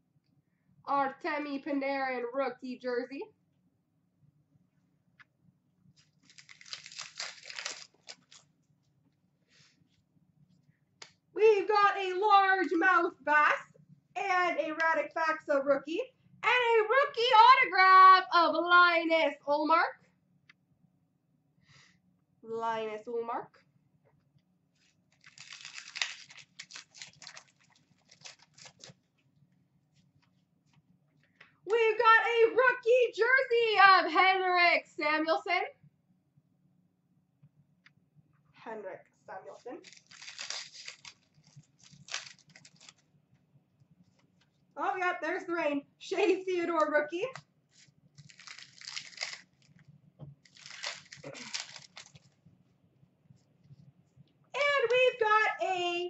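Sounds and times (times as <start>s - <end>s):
trading cards rustling: 6.0s - 8.4s, 25.2s - 29.0s, 39.8s - 43.0s, 47.7s - 49.8s, 50.4s - 52.3s
pack wrapper handled: 6.0s - 8.5s, 25.1s - 29.0s, 39.8s - 43.0s, 47.7s - 49.8s, 50.4s - 52.3s.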